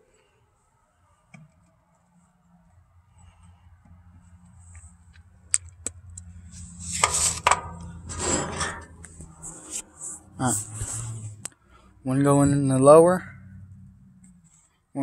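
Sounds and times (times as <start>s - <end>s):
phone rustling and scraping: 6.3s - 11.5s.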